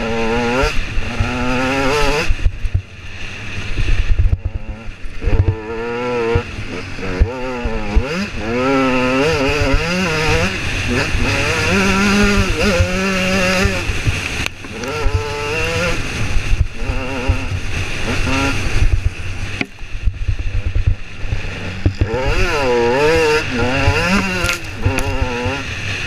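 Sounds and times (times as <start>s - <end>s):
motorcycle engine revving: 0.0s - 26.0s
wind buffeting microphone: 3.6s - 25.6s.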